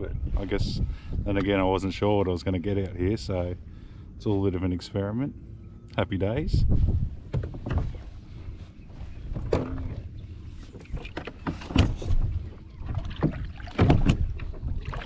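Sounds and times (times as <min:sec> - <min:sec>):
low steady rumble: 0:00.0 - 0:15.0
knocks and clunks on a kayak: 0:07.2 - 0:08.1, 0:09.2 - 0:15.0.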